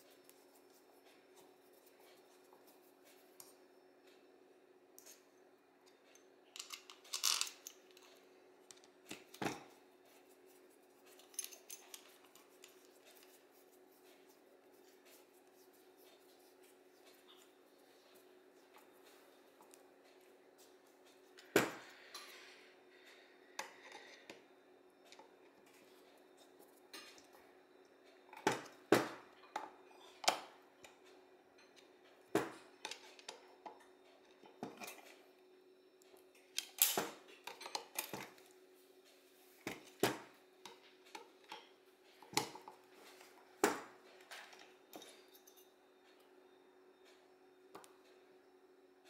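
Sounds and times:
faint steady hum: 0.0s - 49.0s
metal parts clinking: 6.6s - 8.1s.

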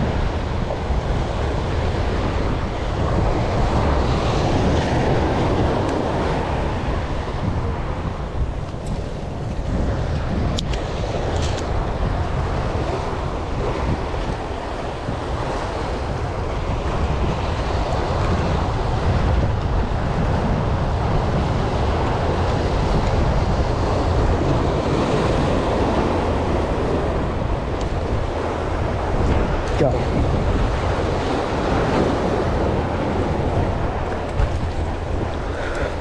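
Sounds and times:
wind buffeting microphone: 0.0s - 36.0s
surf breaking over rocks: 8.7s - 36.0s.

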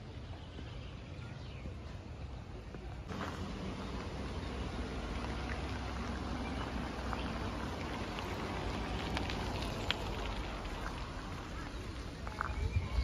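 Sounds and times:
street hiss: 3.0s - 12.4s.

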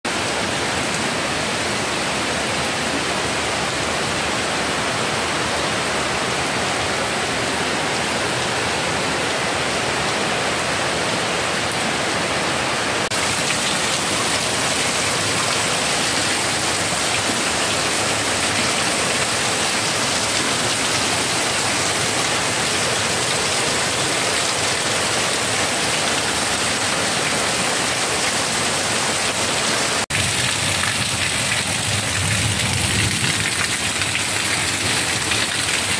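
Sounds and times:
heavy rain on water: 0.1s - 35.9s
runoff water pouring: 13.1s - 24.0s, 30.1s - 35.9s.

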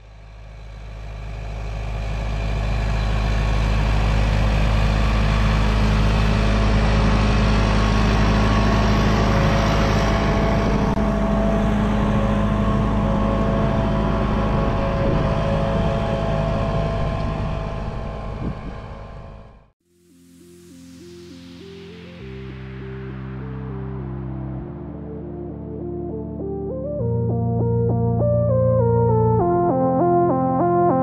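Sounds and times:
tractor engine under load: 0.1s - 19.6s.

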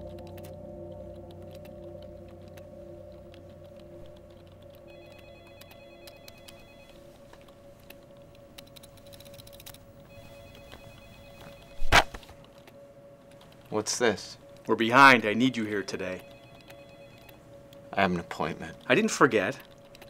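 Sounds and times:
computer keyboard typing: 0.0s - 9.8s, 15.4s - 17.4s, 18.4s - 20.0s
low steady hum: 0.0s - 20.0s
telephone trilling: 4.9s - 7.0s, 10.1s - 11.9s, 15.4s - 17.4s.

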